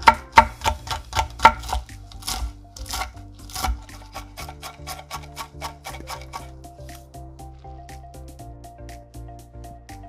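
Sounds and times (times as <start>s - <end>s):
knife chopping on wooden board: 0.0s - 6.5s
background music: 0.0s - 10.0s.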